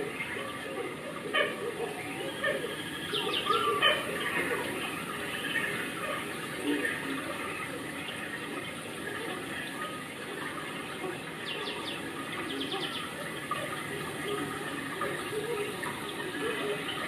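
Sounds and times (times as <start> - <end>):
running water rushing: 0.0 - 17.0
bird chirping: 1.8 - 7.5, 11.4 - 17.0.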